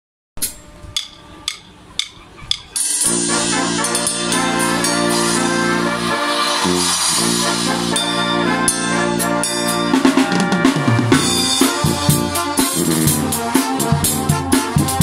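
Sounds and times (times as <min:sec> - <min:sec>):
brass band playing: 0:00.4 - 0:15.0.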